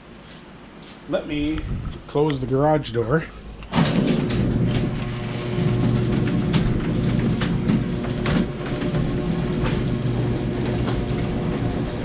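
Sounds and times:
garage door rumbling hum: 0:01.3 - 0:12.0
garage door clacks: 0:03.6 - 0:12.0.

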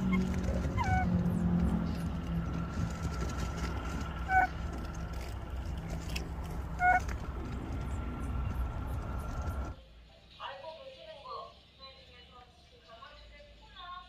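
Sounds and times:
low motor drone: 0:00.0 - 0:09.8.

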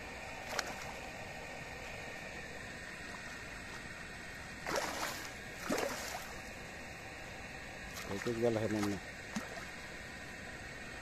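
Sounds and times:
fish splashing in water: 0:04.6 - 0:06.6, 0:07.9 - 0:09.9.

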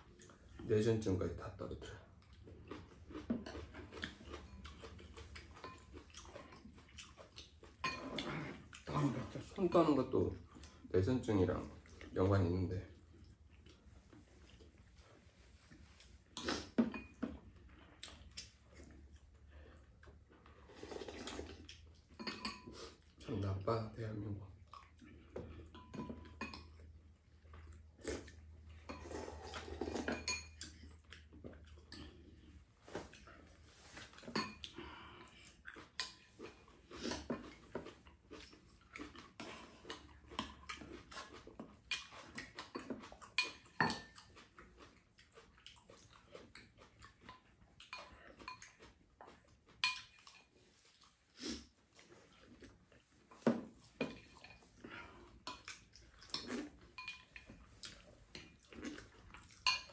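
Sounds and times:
eating noises: 0:01.4 - 0:59.9
utensils clinking on bowls: 0:22.1 - 0:22.8, 0:25.7 - 0:26.9, 0:28.8 - 0:30.8, 0:34.0 - 0:34.7, 0:56.3 - 0:58.5, 0:59.5 - 0:59.9.

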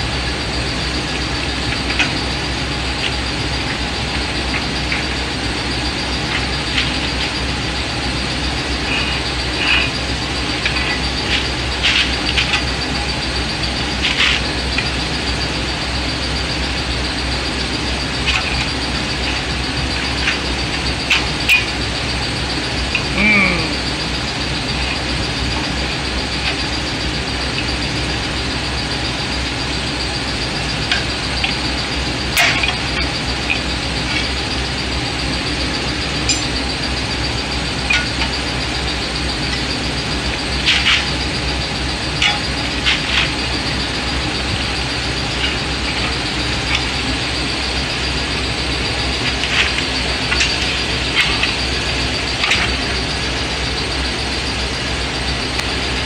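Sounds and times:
steady background hum: 0:00.0 - 0:56.0
hand tools clicking on metal: 0:49.1 - 0:53.1.

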